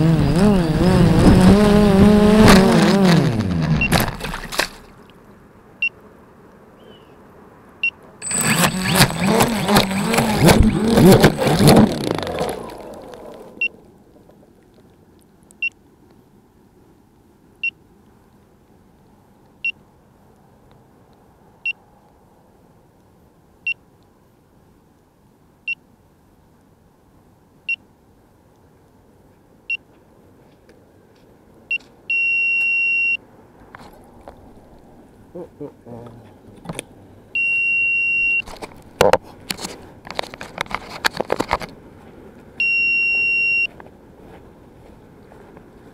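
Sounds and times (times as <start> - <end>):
drone motors spinning up: 0.0 - 4.5, 8.2 - 13.7
short high beeps: 7.8 - 11.6, 31.7 - 33.2, 37.4 - 38.5, 42.6 - 43.8.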